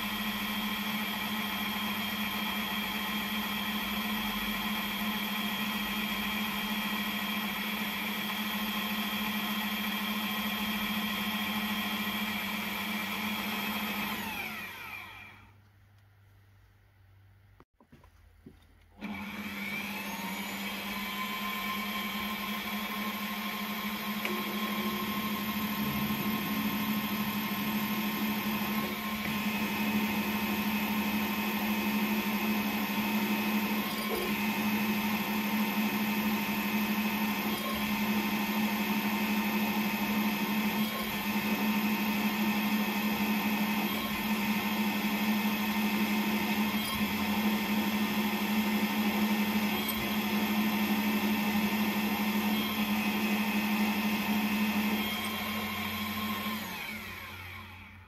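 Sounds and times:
metal lathe motor hum and whine: 0.0 - 15.5, 19.0 - 58.0
drill boring into metal: 19.0 - 58.0.

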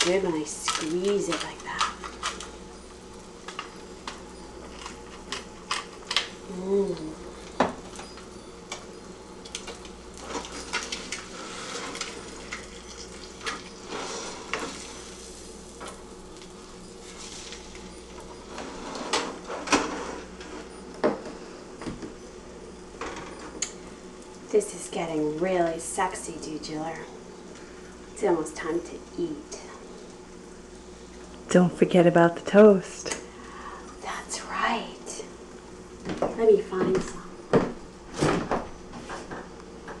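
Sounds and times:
spatula scraping frying pan: 13.4 - 16.0.

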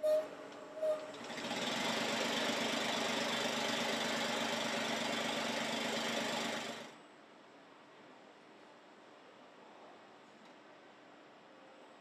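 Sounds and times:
car engine clattering: 1.0 - 6.9.

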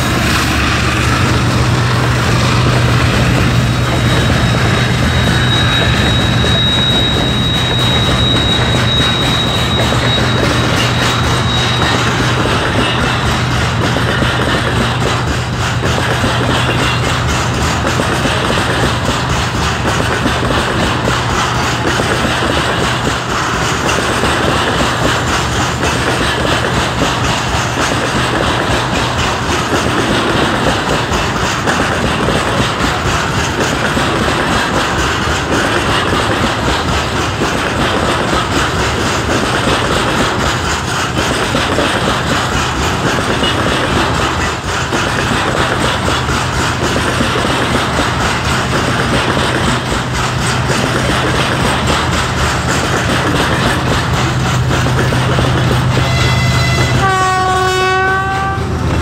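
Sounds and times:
diesel locomotive engine: 0.0 - 59.0
freight wagons rolling on steel wheels: 1.1 - 57.2
locomotive horn blast: 56.0 - 58.8.

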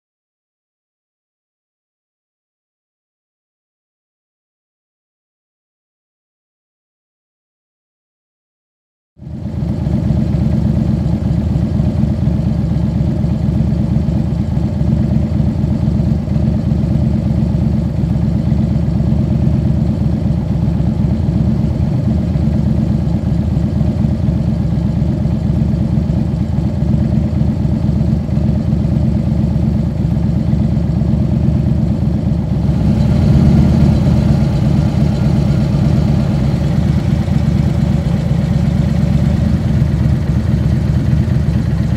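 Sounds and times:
motorcycle engine idling: 9.2 - 41.9.

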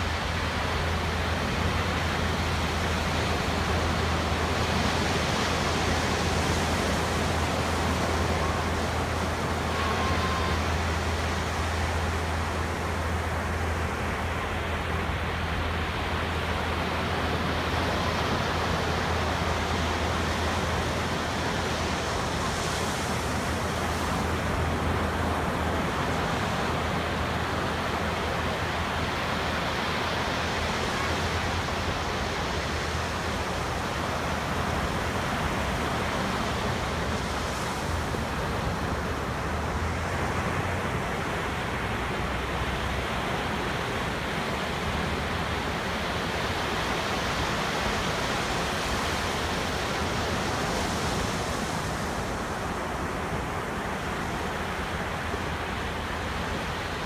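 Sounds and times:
ocean waves breaking on beach: 0.0 - 57.0.

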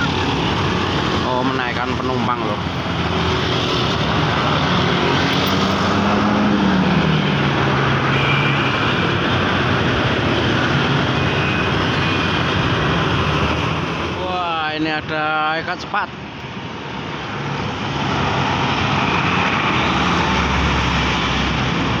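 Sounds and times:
motorcycles: 0.0 - 14.5
traffic noise: 0.0 - 22.0.

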